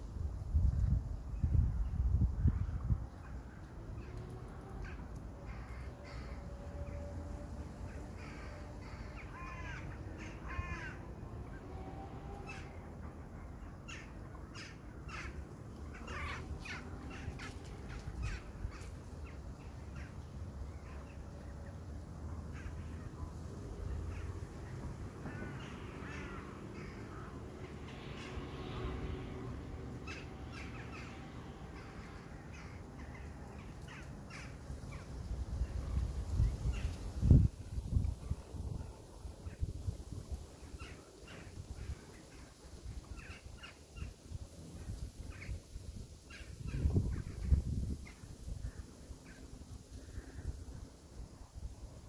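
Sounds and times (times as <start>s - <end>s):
crows cawing: 4.8s - 7.1s, 7.9s - 11.1s, 13.9s - 19.0s, 25.2s - 27.4s, 30.0s - 35.0s.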